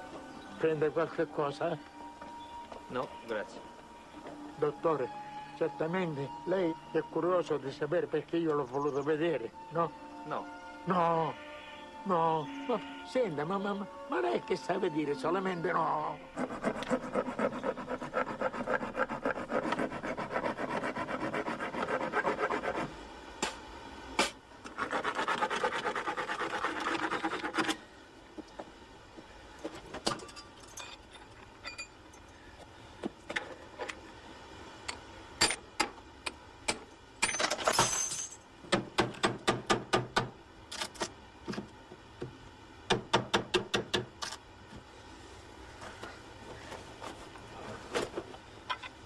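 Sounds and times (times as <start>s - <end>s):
rasping scrape on door: 16.4s - 22.9s.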